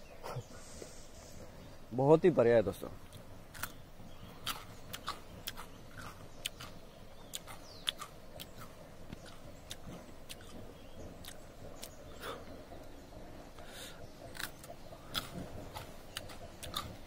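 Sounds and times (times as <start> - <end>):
person chewing plant stalk: 3.0 - 12.5, 13.6 - 17.0.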